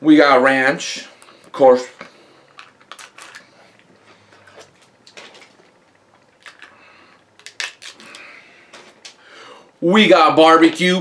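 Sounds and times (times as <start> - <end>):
plastic lid crinkling and clicking: 7.4 - 8.1.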